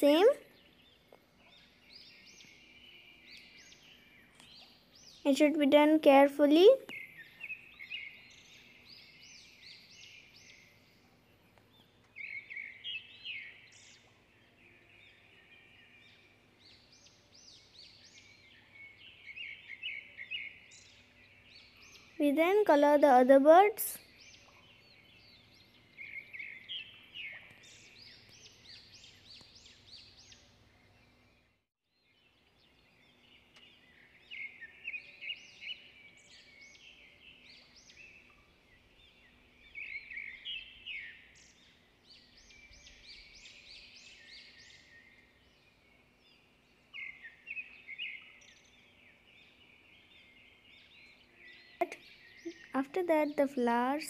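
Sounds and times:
sweeping high bird calls: 0.0s - 11.0s, 11.6s - 31.2s, 33.1s - 54.0s
small birds chirping: 0.0s - 54.0s.

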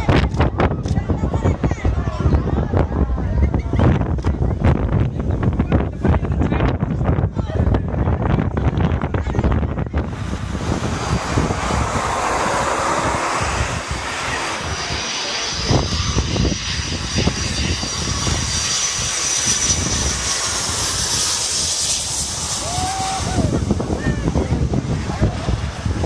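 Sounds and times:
jet engines roaring: 0.0s - 26.0s
high engine whine: 9.0s - 26.0s.

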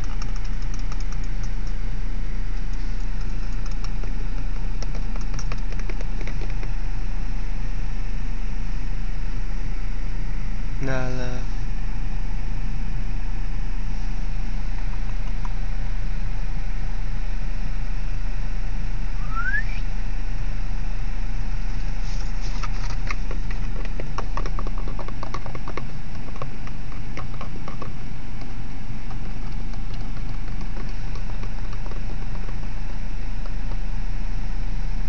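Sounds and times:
irregular clicks and ticks: 0.0s - 1.8s, 2.7s - 6.7s, 22.6s - 32.6s
car idling rumble: 21.7s - 34.3s.

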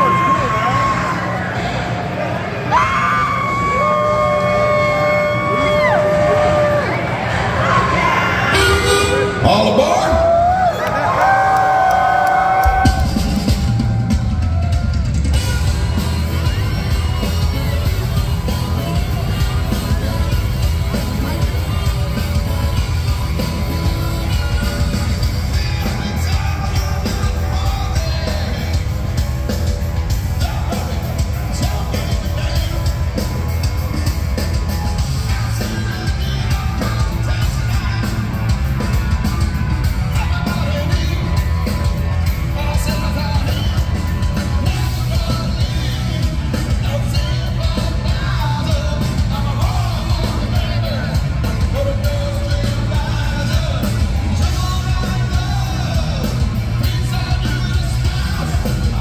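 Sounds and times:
live rock band playing: 8.5s - 10.5s, 12.6s - 59.0s
lead vocals: 15.2s - 59.0s.

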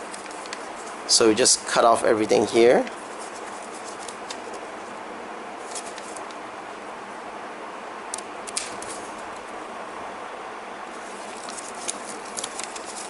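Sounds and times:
steady low hiss: 0.0s - 13.0s
scissors snipping paper: 11.3s - 13.0s.

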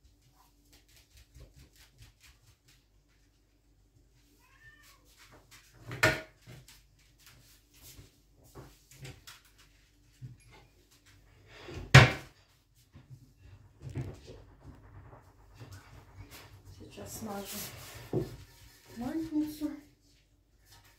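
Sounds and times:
cat meowing: 4.4s - 5.2s.

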